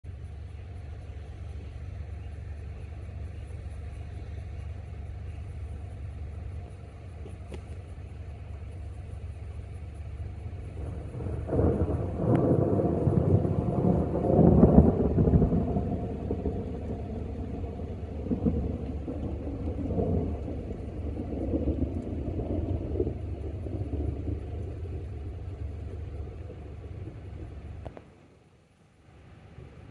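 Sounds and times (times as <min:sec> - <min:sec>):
steady low rumble: 0:00.0 - 0:29.9.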